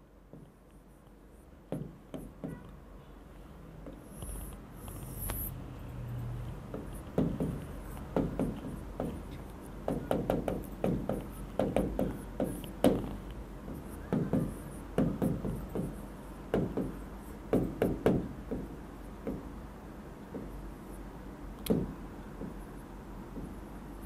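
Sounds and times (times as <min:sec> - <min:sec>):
pen tapping on a screen: 0:00.3 - 0:02.8, 0:06.5 - 0:19.5, 0:20.3 - 0:20.6, 0:21.6 - 0:22.7, 0:23.3 - 0:23.6.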